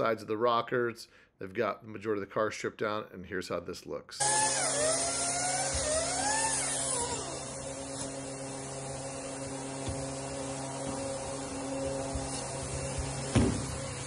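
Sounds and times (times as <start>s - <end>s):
machine motor hum: 4.2s - 14.0s.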